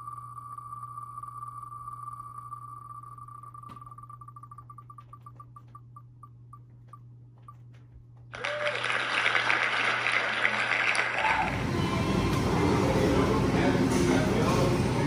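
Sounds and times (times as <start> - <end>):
applause sound effect: 8.3 - 11.7.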